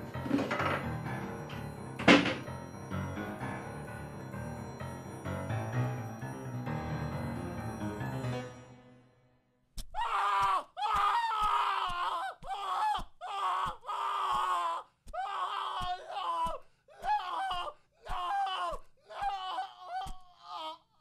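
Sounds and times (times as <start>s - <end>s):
person screaming in terror: 10.0s - 20.9s.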